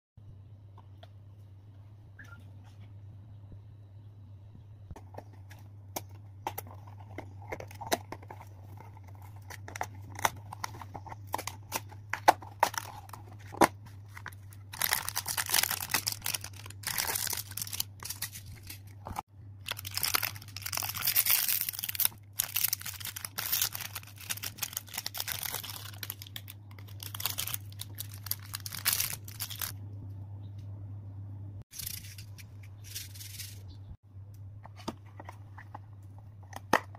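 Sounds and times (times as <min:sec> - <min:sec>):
plastic wrappers crinkling: 0:06.7 - 0:29.8.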